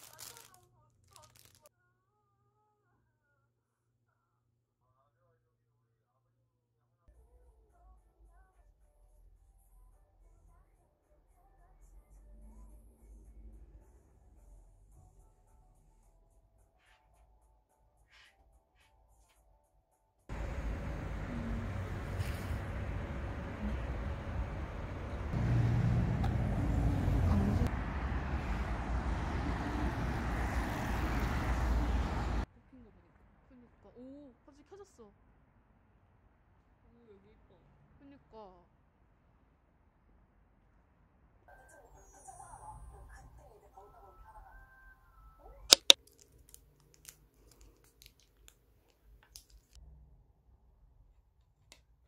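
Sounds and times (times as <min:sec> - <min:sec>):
plastic sachet crinkling: 0:00.0 - 0:01.7, 0:45.7 - 0:48.6, 0:49.2 - 0:49.8
low engine hum: 0:20.3 - 0:32.5
traffic passing: 0:20.3 - 0:32.5.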